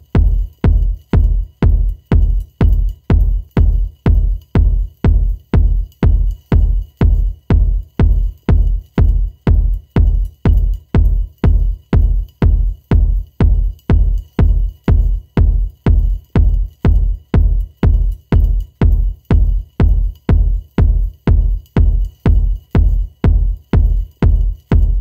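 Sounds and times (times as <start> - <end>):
deep kick-drum beat: 0.0 - 25.0
electronic music: 0.0 - 25.0.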